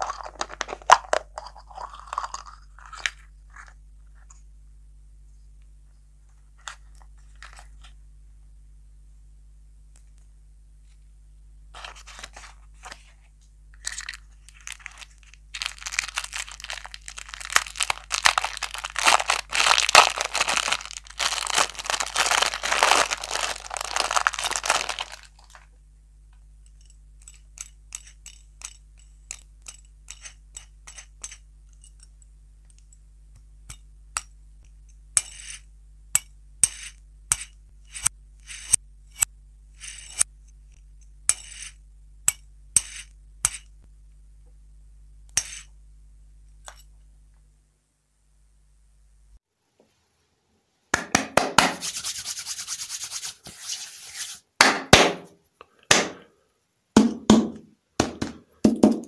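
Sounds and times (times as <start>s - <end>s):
plastic wrapper crinkling and tearing: 0.0s - 3.2s, 13.8s - 25.7s.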